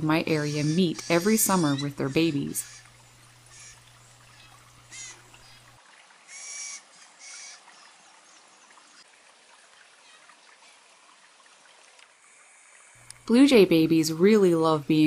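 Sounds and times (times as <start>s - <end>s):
blue jay calls: 0.0s - 7.9s.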